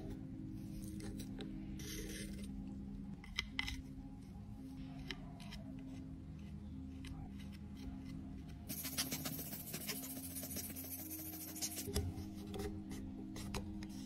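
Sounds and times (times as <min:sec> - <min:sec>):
soft background music: 0:00.0 - 0:14.0
metal blade scraping powder: 0:08.7 - 0:11.9.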